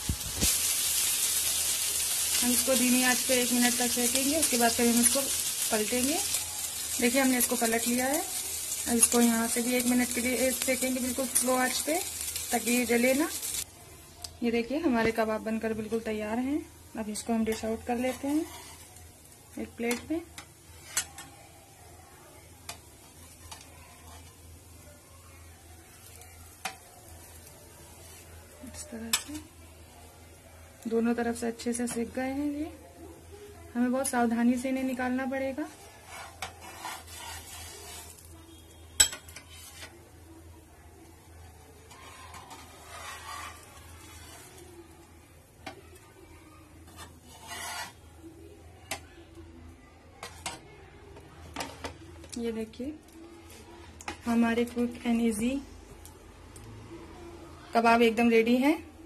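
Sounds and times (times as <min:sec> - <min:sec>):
food sizzling in oil: 0:00.0 - 0:49.0
metal spatula scraping pan: 0:17.5 - 0:19.0, 0:19.8 - 0:21.3, 0:35.7 - 0:40.0, 0:41.8 - 0:44.6, 0:46.8 - 0:48.2, 0:50.2 - 0:50.6.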